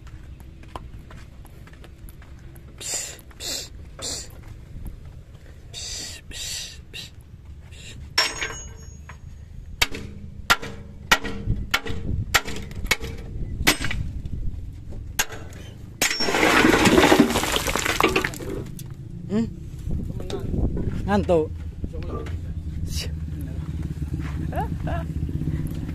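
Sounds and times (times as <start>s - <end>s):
sand and gravel pouring out: 16.2s - 18.7s
truck engine running: 18.3s - 25.9s.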